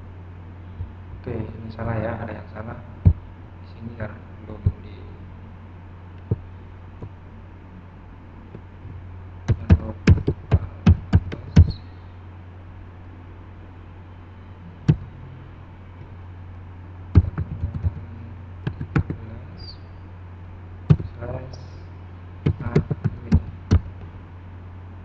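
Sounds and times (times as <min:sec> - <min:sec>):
steady low hum: 0:00.0 - 0:25.0
computer keyboard keystrokes: 0:09.5 - 0:11.7, 0:17.2 - 0:18.0, 0:18.7 - 0:19.2.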